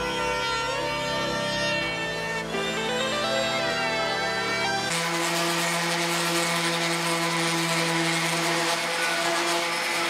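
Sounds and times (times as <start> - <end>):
orbital sander on wood: 4.9 - 10.0.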